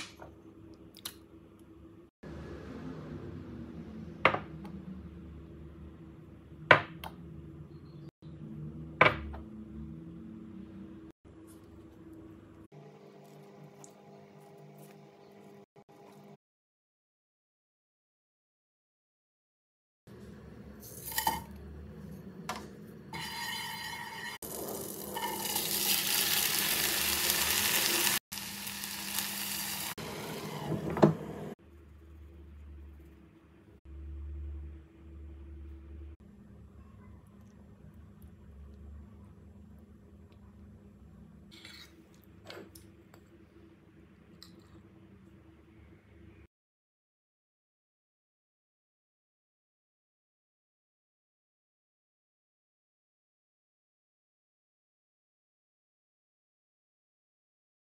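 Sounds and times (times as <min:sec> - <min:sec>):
butter and spices sizzling: 0:23.2 - 0:31.6.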